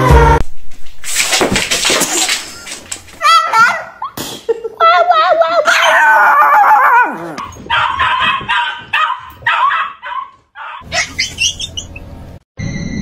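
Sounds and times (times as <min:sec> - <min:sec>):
small dog yapping: 0:03.2 - 0:04.2, 0:05.7 - 0:11.6.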